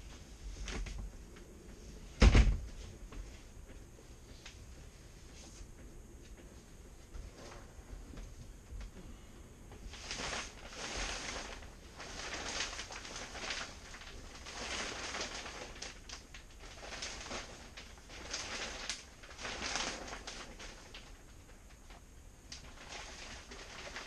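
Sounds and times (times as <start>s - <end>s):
plastic film rustling and crinkling: 9.7s - 24.0s.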